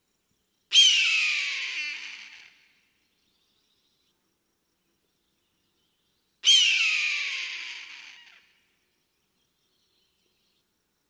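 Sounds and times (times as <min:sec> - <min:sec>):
eagle scream: 0:00.7 - 0:02.6, 0:06.4 - 0:08.4.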